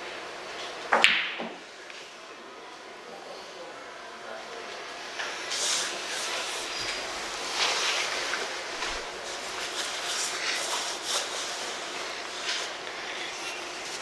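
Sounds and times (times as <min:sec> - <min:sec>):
billiard balls rolling and knocking: 0:00.9 - 0:01.6.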